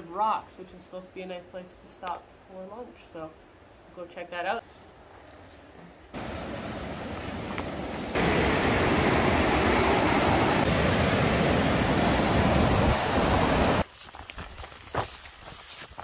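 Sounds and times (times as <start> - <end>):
rapids rushing over rocks: 6.2 - 13.8.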